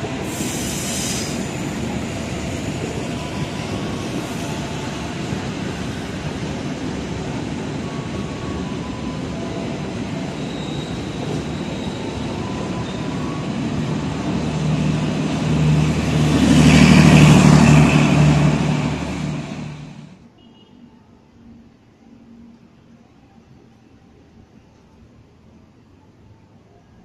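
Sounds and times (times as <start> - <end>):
train coaches rumbling on rails: 0.0 - 20.2.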